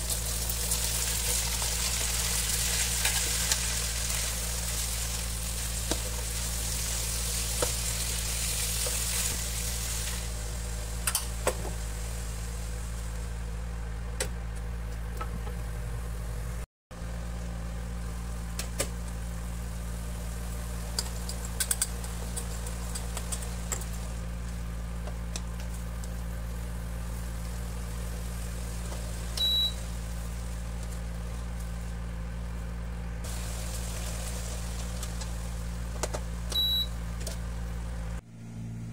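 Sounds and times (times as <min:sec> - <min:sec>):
food sizzling in a pan: 0:00.0 - 0:13.7, 0:25.8 - 0:32.0, 0:33.3 - 0:36.8
cooktop electrical hum: 0:00.0 - 0:38.9
short electronic beep: 0:29.4 - 0:29.8, 0:36.6 - 0:37.0.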